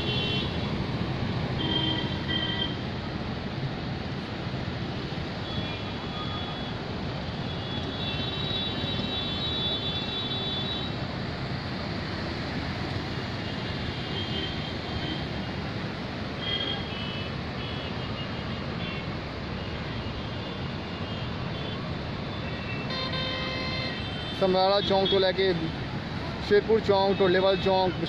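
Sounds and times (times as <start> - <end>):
city traffic noise: 0.0 - 28.0
vehicle horns: 1.6 - 2.8, 22.6 - 25.2.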